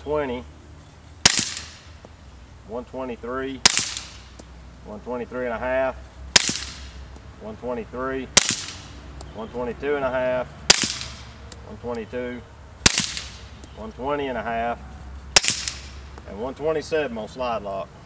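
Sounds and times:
suppressed pistol shots: 0:01.2 - 0:01.9, 0:03.6 - 0:04.4, 0:06.3 - 0:07.0, 0:08.4 - 0:08.9, 0:10.7 - 0:11.4, 0:12.8 - 0:13.5, 0:15.4 - 0:16.0.

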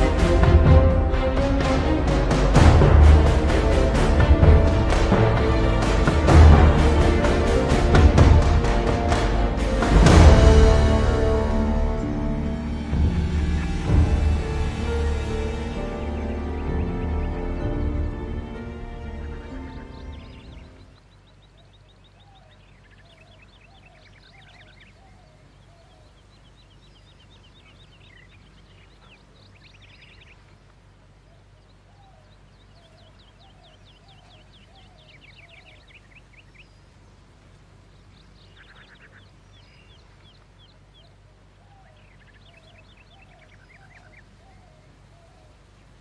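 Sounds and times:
lower bird call: 0:00.0 - 0:46.0
high bird chirps and trills: 0:11.9 - 0:30.6, 0:31.2 - 0:46.0.

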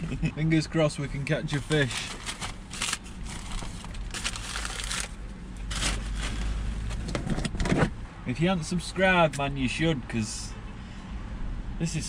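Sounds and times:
plastic bags crinkling: 0:01.5 - 0:06.9.

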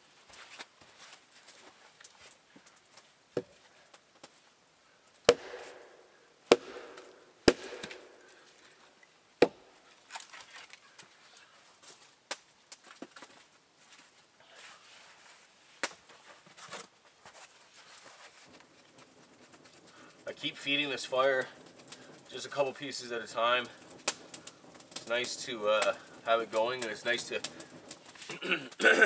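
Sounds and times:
axe chopping firewood: 0:05.2 - 0:08.8, 0:09.4 - 0:10.2, 0:18.5 - 0:29.0.

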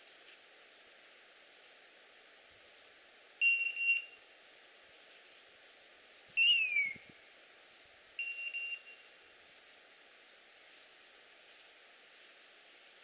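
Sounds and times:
collar beeping: 0:08.2 - 0:09.0.

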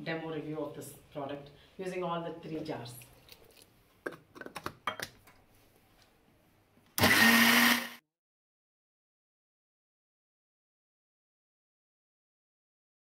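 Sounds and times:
mixer grinder motor whirring: 0:07.0 - 0:08.0.

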